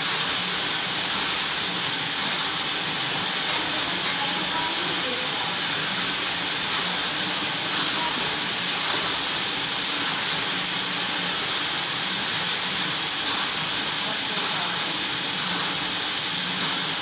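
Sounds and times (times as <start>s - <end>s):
machine whirring hiss: 0.0s - 17.0s.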